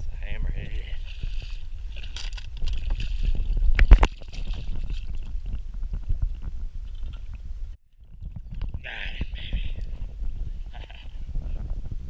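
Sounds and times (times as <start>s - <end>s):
low wind rumble: 0.0s - 12.0s
fish thrashing and splashing: 1.0s - 6.3s.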